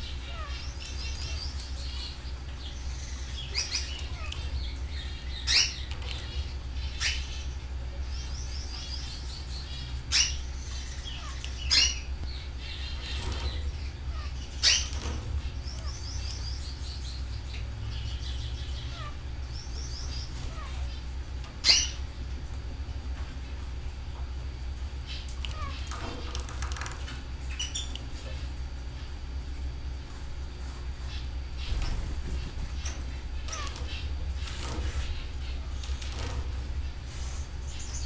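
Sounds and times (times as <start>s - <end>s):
sharp bird calls: 0.0s - 22.1s, 32.8s - 36.0s
canaries trilling: 0.0s - 38.0s
steady low hum: 0.0s - 38.0s.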